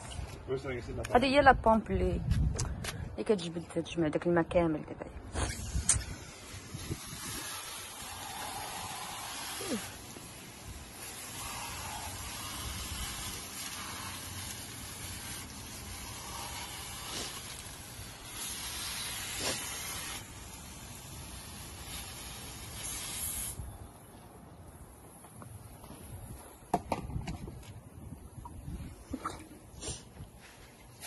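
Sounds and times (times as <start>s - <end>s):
hose water spraying on grass: 5.4s - 23.8s.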